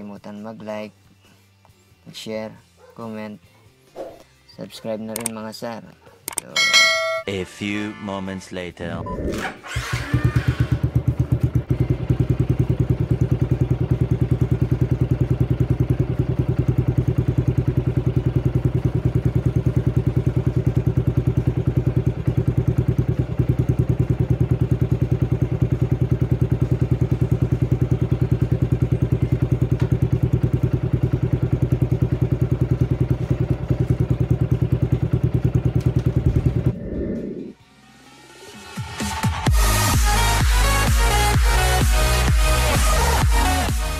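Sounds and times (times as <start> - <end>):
motorcycle engine idling: 10.6 - 36.7.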